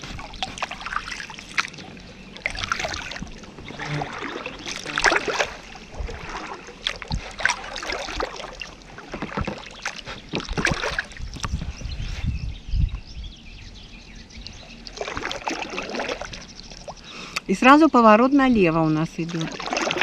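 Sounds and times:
paddle splashing and dripping: 0.0s - 11.7s, 14.4s - 17.5s, 19.2s - 20.0s.

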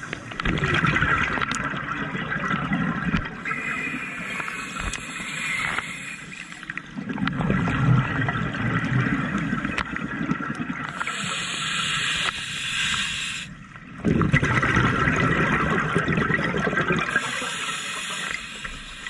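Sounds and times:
bubbling underwater exhale: 0.0s - 12.1s, 14.0s - 19.0s
hissing regulator inhale: 3.4s - 6.8s, 11.0s - 13.6s, 17.1s - 19.0s.

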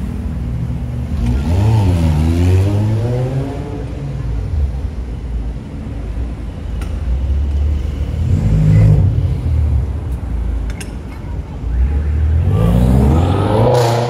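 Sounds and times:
low traffic engine rumble: 0.0s - 14.0s
vehicle engine revving: 1.0s - 4.0s, 12.1s - 14.0s.

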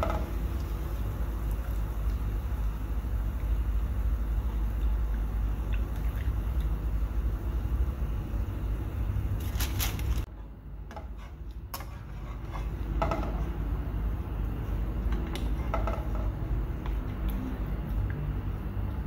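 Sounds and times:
wire skimmer scraping frying pan: 10.9s - 13.6s, 15.2s - 16.6s.

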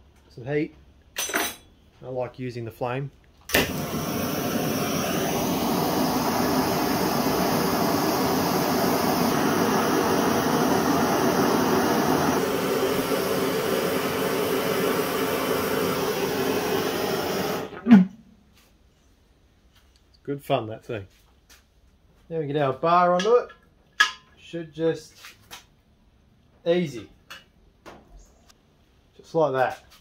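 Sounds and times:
gas torch flame hissing: 3.5s - 17.8s.

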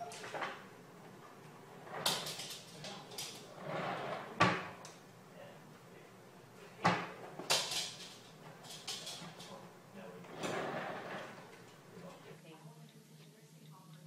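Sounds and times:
office chair knocking and rattling: 0.2s - 4.8s, 6.8s - 11.8s.

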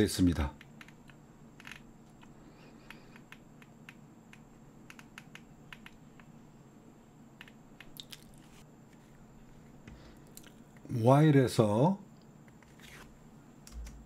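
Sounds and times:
computer keys and mouse clicking: 0.6s - 6.3s, 7.4s - 8.2s, 13.6s - 14.0s.

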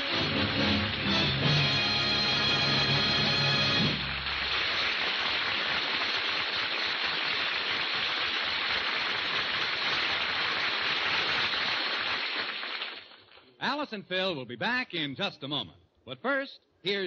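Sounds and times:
audience applauding: 0.0s - 13.3s.

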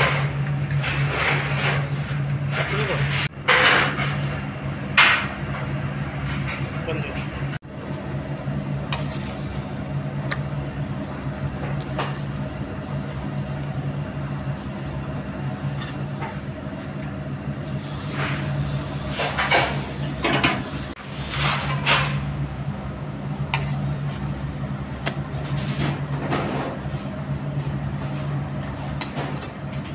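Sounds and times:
steady mechanical hum: 0.0s - 29.9s
flatbread frying in butter: 10.7s - 19.4s.

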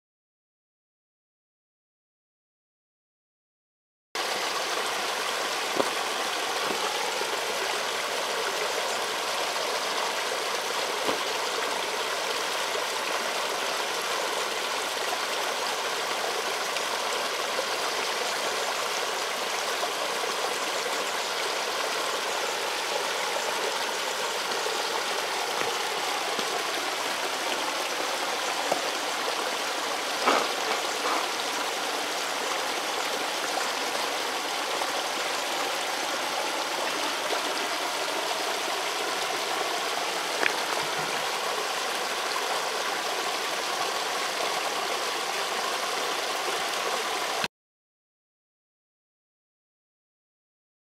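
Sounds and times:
sharp water drips: 4.2s - 13.0s, 21.1s - 33.4s, 34.4s - 44.3s
stream trickling: 4.2s - 47.5s.

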